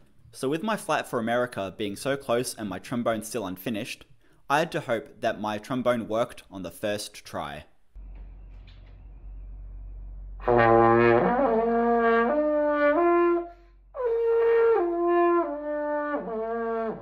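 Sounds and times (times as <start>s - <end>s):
trombone playing held notes: 10.4s - 17.0s.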